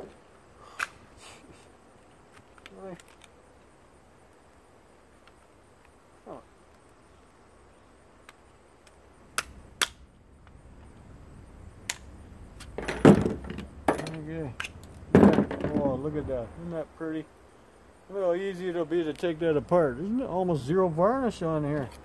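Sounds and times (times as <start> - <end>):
metal casing clattering apart: 12.7 - 14.2.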